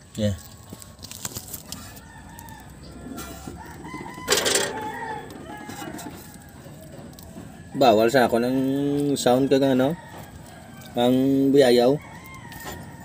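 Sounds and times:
rooster crowing: 0:00.5 - 0:13.0
noisy scrape or clatter: 0:03.0 - 0:07.4.

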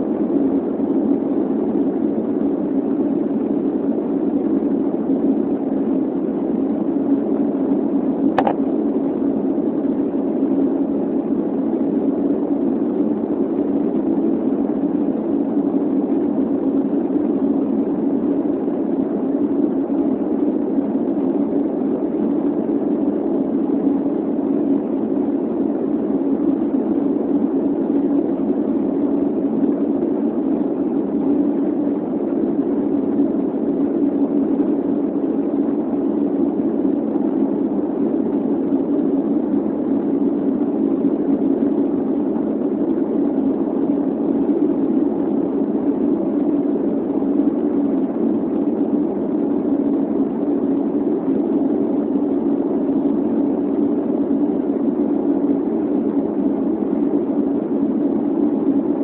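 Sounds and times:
airplane cabin roar: 0:00.0 - 0:59.0
brief click: 0:08.4 - 0:08.6.

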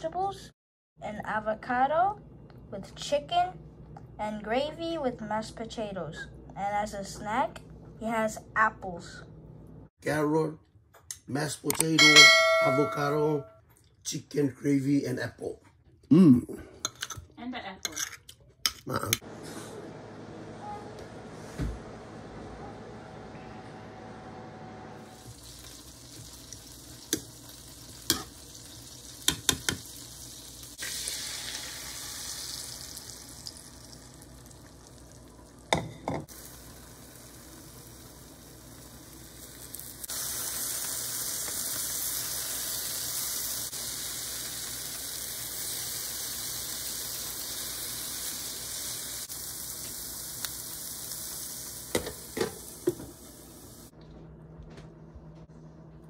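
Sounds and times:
omelette sizzling in a frying pan: 0:25.0 - 0:53.9.

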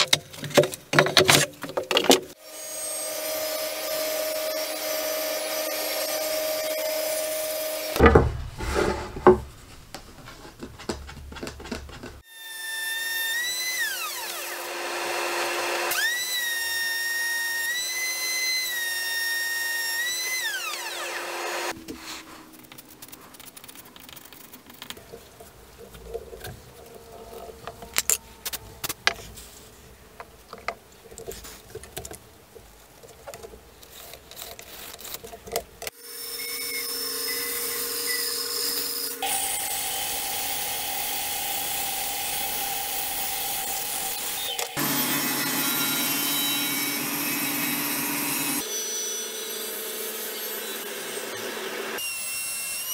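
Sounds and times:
taps and scrapes of wood: 0:00.0 - 0:02.4, 0:08.0 - 0:12.2
bandsaw cutting wood: 0:11.4 - 0:21.8, 0:36.0 - 0:52.9
power tool motor whining: 0:20.0 - 0:21.7.

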